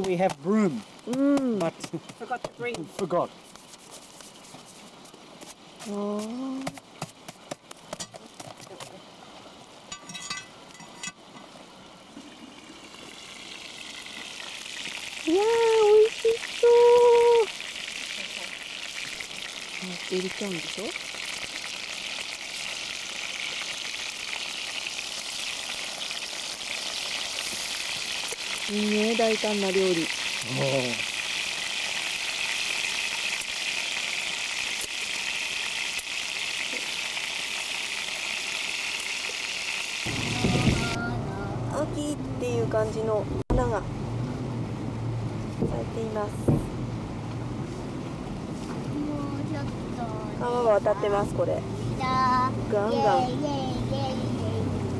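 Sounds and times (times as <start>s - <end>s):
roast sizzling: 0.0s - 54.9s
metal lid clinks and scrapes: 9.9s - 11.5s.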